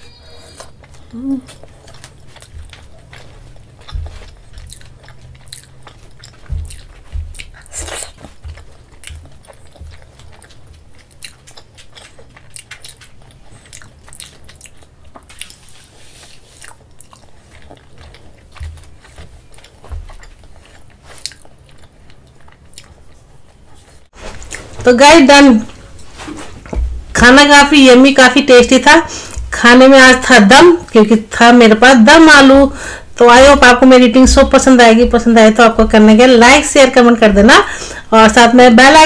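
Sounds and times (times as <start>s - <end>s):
wet chewing mouth sounds: 0.2s - 24.8s
soft low bumps: 25.7s - 27.8s, 32.0s - 37.7s.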